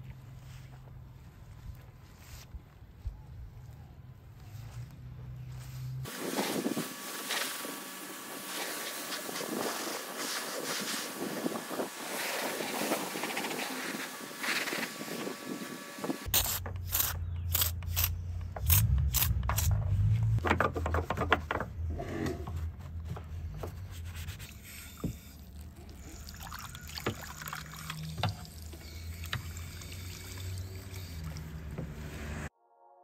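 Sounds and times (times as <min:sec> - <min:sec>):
pressure washer spray hissing: 0:06.1 - 0:16.2.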